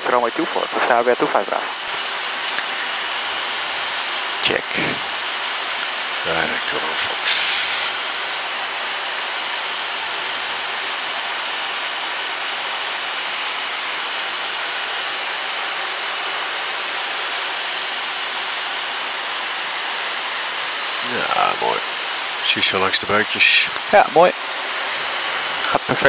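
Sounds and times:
cockpit airflow hiss: 0:00.0 - 0:26.0.

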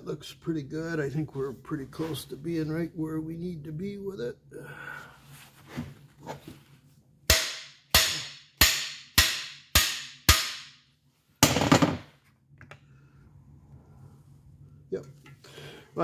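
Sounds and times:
hammer striking metal bar: 0:07.3 - 0:10.8.

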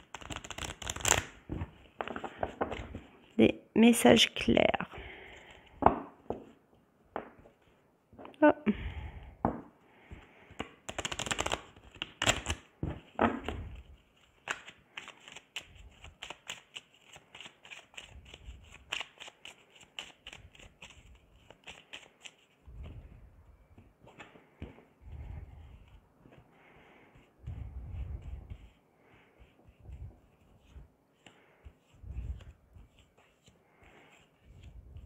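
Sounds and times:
playing cards shuffled: 0:00.0 - 0:03.2, 0:10.6 - 0:25.9.

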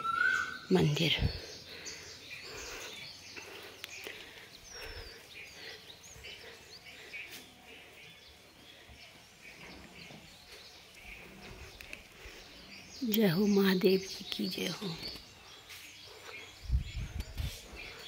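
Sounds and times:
whistled bird calls: 0:00.0 - 0:00.7
bird chirps: 0:00.0 - 0:18.0.

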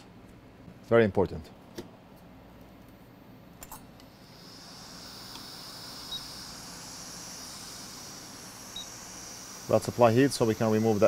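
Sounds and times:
hot air blower hissing: 0:04.1 - 0:11.0.

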